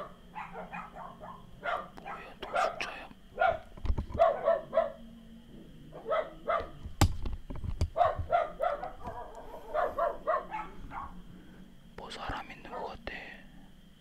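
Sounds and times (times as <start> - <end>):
dog barking: 0.0 - 5.1, 5.9 - 6.8, 7.9 - 11.2.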